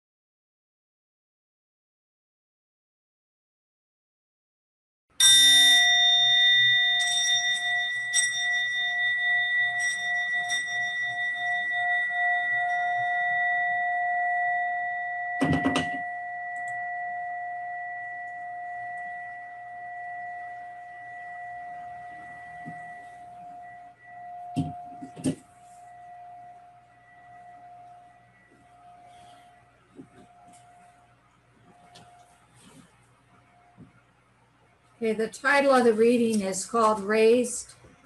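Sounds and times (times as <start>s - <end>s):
singing bowl ringing: 5.2s - 32.9s.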